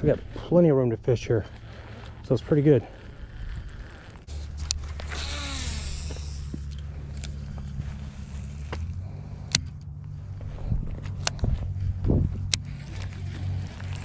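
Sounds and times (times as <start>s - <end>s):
low hum: 0.0s - 14.0s
fishing reel whirring: 1.5s - 10.2s, 12.4s - 14.0s
fishing reel clicks: 3.0s - 9.8s.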